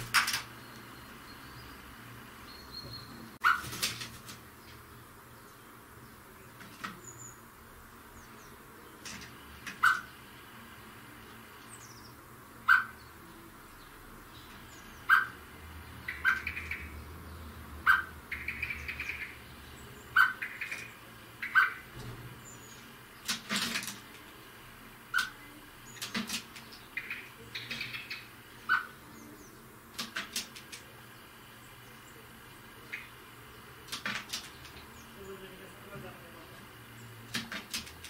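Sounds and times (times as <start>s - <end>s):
birds chirping: 0.0s - 38.0s
sharp clicks: 29.9s - 30.9s, 33.8s - 34.9s, 37.3s - 38.0s.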